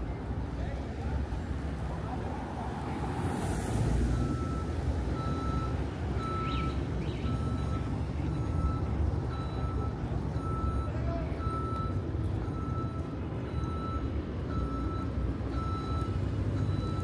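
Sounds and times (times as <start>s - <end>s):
street traffic rumble: 0.0s - 17.0s
reversing alarm beeping: 4.1s - 17.0s.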